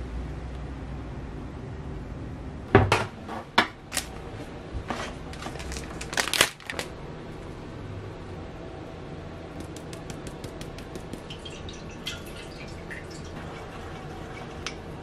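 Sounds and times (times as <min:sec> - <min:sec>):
low room hum: 0:00.0 - 0:15.0
plastic bag crinkling: 0:05.4 - 0:06.9.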